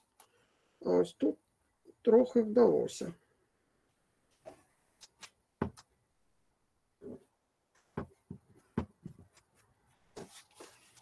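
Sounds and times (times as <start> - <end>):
faint handling taps and knocks: 7.8 - 9.7.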